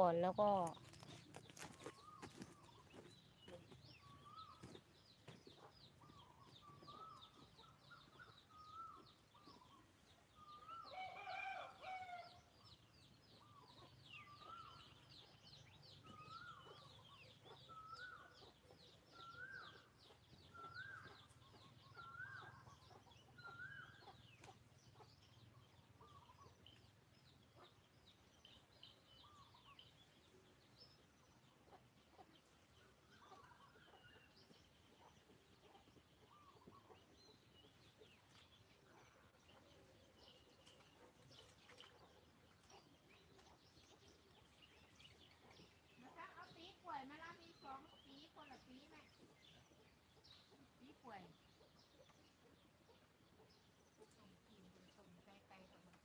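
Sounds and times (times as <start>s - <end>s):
small birds chirping: 0.0s - 56.0s
chickens clucking: 0.3s - 10.0s, 31.3s - 46.6s.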